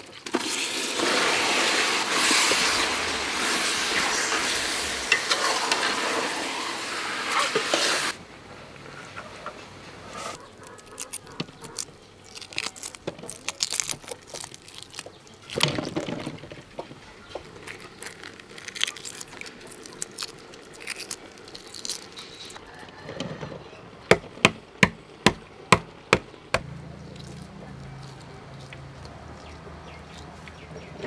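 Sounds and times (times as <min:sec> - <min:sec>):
eggshells crackling: 0:10.4 - 0:22.6.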